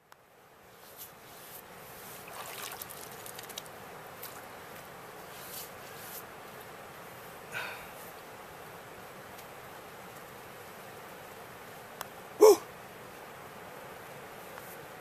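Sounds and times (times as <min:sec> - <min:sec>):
outdoor noise rush: 0:00.0 - 0:15.0
hands splashing in shallow water: 0:02.2 - 0:04.4.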